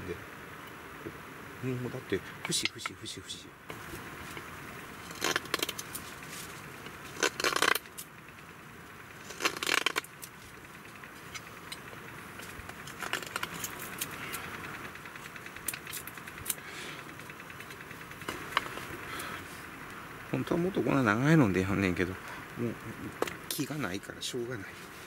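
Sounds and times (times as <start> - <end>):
knife carving wood: 3.8 - 8.1, 9.2 - 17.6.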